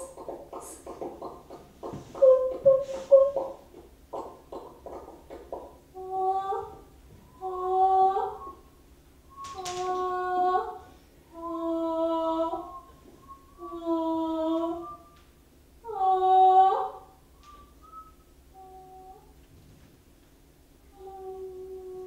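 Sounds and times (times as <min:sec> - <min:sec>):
person humming held notes: 0:02.1 - 0:03.6, 0:06.0 - 0:08.6, 0:09.4 - 0:15.2, 0:18.6 - 0:19.3, 0:20.9 - 0:22.0.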